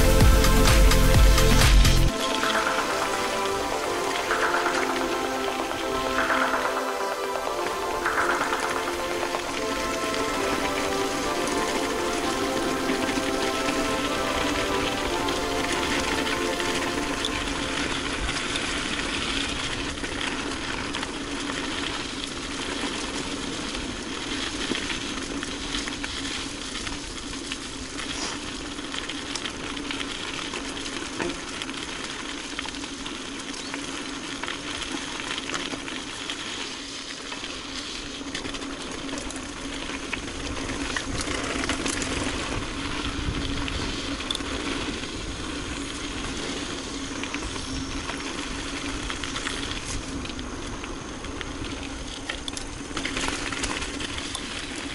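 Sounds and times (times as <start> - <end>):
bike tyres rolling on trail: 0.0 - 54.9
bike clicks and rattles: 18.2 - 54.9.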